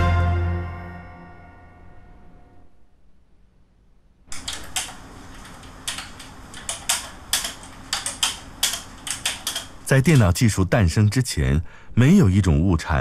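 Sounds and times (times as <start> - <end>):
computer keyboard typing: 4.3 - 10.3.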